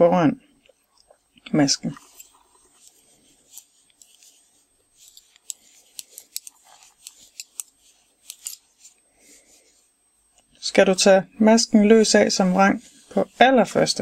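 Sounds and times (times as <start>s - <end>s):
yarn rubbing: 1.8s - 10.0s, 11.8s - 14.0s
metal knitting needles clicking: 5.0s - 8.6s.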